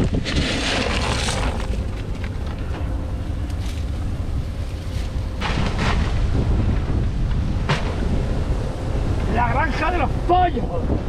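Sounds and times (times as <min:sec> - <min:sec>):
plastic sack rustling: 0:00.0 - 0:02.5
wind buffeting microphone: 0:00.0 - 0:11.0.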